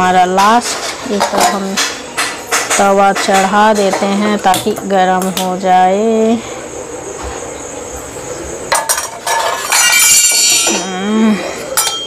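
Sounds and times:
metal cookware clinking: 0.4 - 4.9, 8.7 - 11.0, 11.6 - 12.0.

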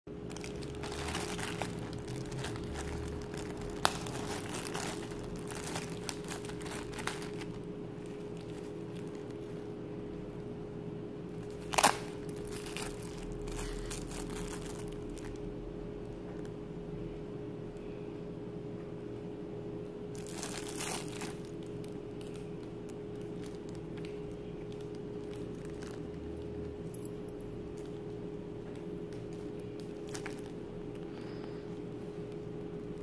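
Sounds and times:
faint steady hum: 0.1 - 33.0
plastic packaging crinkling: 0.2 - 9.6, 11.4 - 15.5, 20.1 - 31.5.

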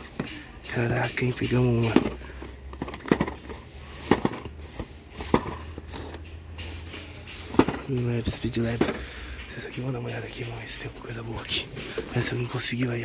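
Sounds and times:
toy cars and box clicking: 0.0 - 9.5.

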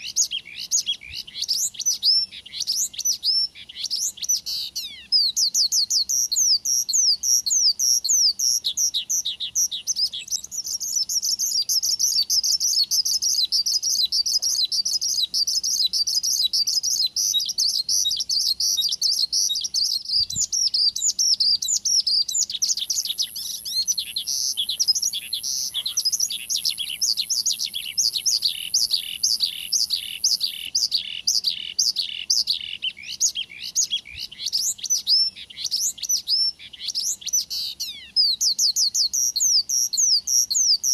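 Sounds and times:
bird chirping and trilling: 0.0 - 40.9
downward-sweeping bird whistles: 0.0 - 40.9.

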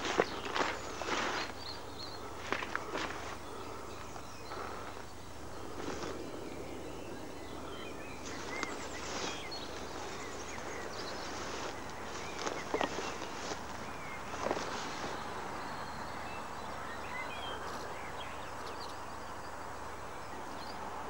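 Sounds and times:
weeds rustling against camera: 0.0 - 7.3, 8.1 - 15.7
steady low hum: 0.0 - 18.1
small birds chirping: 0.0 - 21.0.

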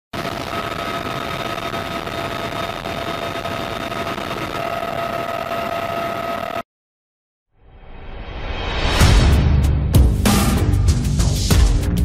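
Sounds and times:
helicopter engines and rotor: 0.2 - 6.6.

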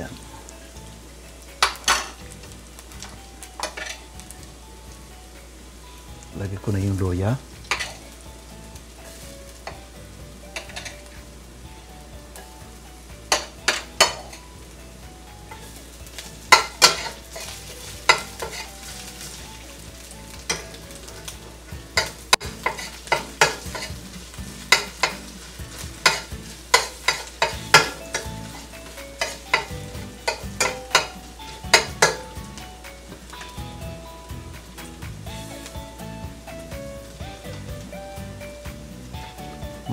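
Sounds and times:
garlic sizzling in oil: 0.0 - 39.9
metal spoon clinking on pan: 1.6 - 2.2, 3.0 - 4.1, 7.7 - 8.0, 10.5 - 11.0, 13.3 - 14.4, 16.4 - 19.4, 20.4 - 21.3, 22.0 - 24.0, 24.6 - 32.4.

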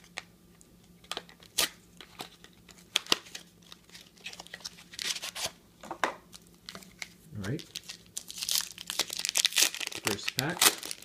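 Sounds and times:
cards rustling: 6.7 - 11.0.

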